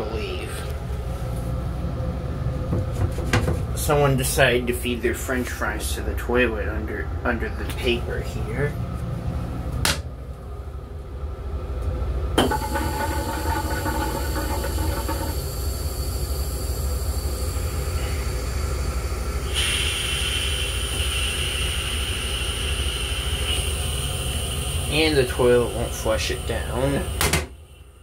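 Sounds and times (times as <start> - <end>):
thin whine: 0.0 - 28.0
train low rumble: 0.0 - 28.0
steady hiss: 13.9 - 28.0.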